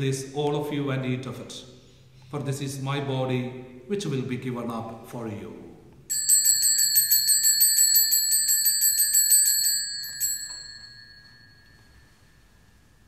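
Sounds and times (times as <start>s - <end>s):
altar bells shaken rapidly: 6.1s - 11.8s.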